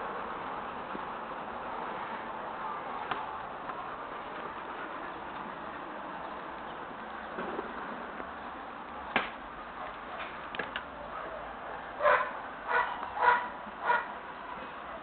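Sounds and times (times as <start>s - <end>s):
dog barking: 12.0s - 14.1s.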